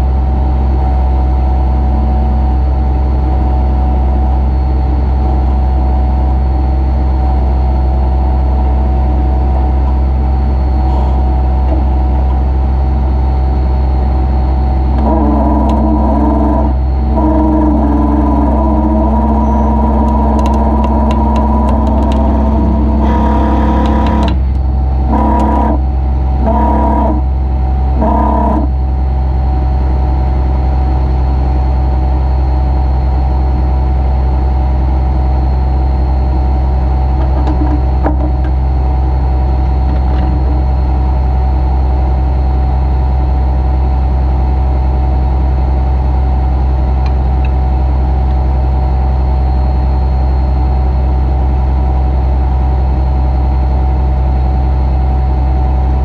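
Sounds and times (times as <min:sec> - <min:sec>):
thin whine: 0:00.7 - 0:56.0
truck engine running: 0:07.5 - 0:31.1.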